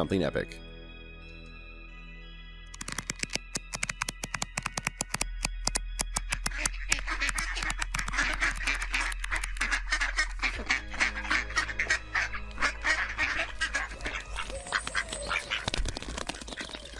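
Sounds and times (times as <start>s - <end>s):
music: 0.0s - 16.7s
ducks quacking: 6.5s - 16.4s.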